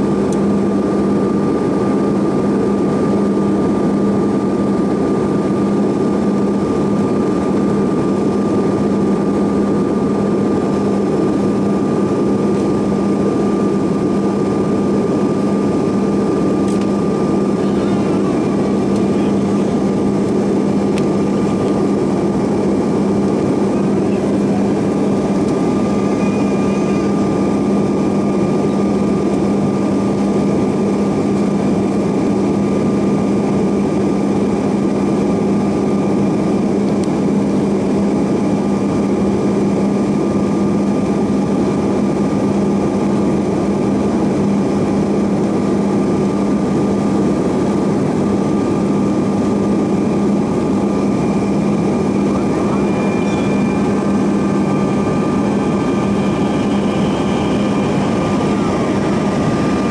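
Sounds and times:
jet engine whine: 0.0 - 59.9
rush of air in cabin: 43.1 - 59.9.

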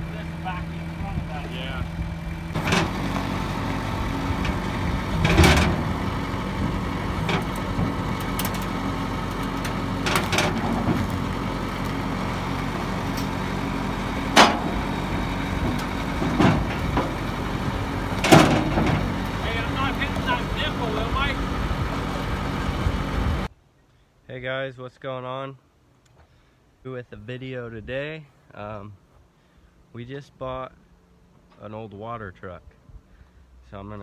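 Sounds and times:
engine idling: 0.0 - 23.5
metallic knocks and clanks: 2.5 - 12.0, 14.1 - 20.4.

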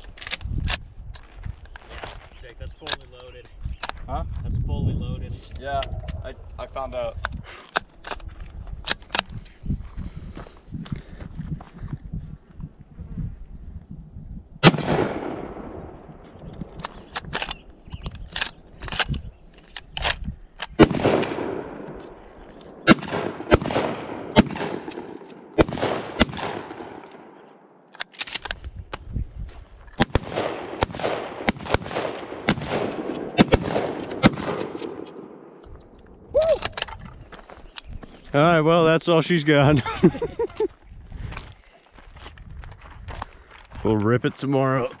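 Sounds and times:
echoing gunshots: 14.6 - 17.8, 20.8 - 27.8, 30.0 - 35.7.

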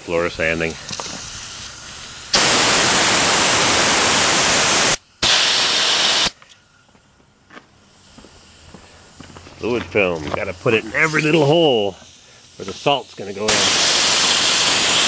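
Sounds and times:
spray gun hissing bursts: 0.6 - 6.4, 10.6 - 15.0.

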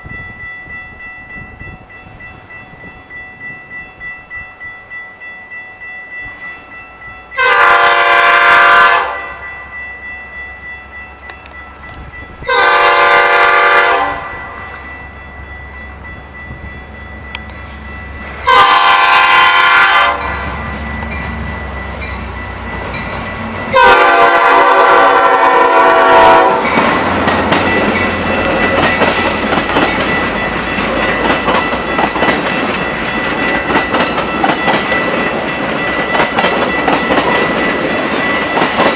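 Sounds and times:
diesel locomotive horn blasts: 7.4 - 9.4, 12.4 - 14.6, 18.4 - 20.6, 23.6 - 27.0
train wheel clatter and rumble: 16.2 - 38.9.

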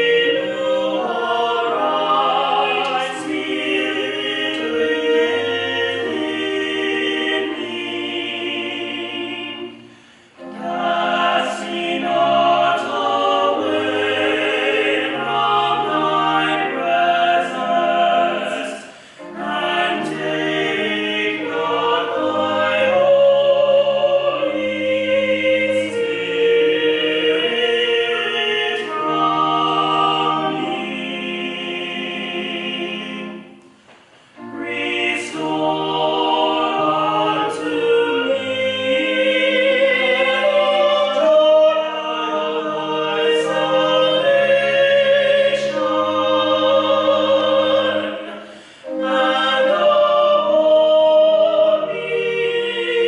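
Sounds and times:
choir singing a hymn: 0.0 - 53.0.

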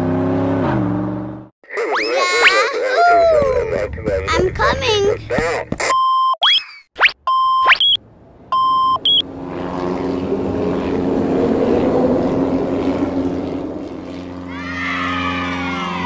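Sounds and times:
short electronic beeps: 5.8 - 9.2
cartoon toy airplane engine: 9.0 - 16.0.

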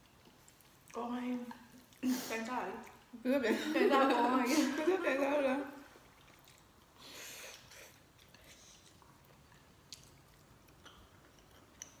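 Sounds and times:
chewing noodles: 5.9 - 12.0.

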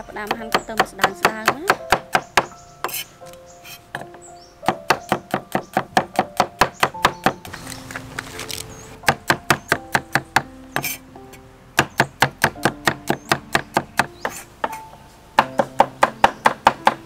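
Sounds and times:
cleaver chopping on wooden board: 4.7 - 7.4, 11.8 - 14.8.

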